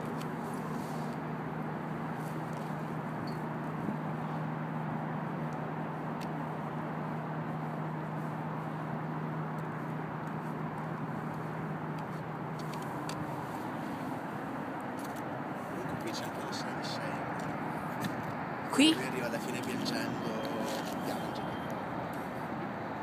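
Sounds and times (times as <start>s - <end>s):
distant traffic: 0.0s - 23.0s.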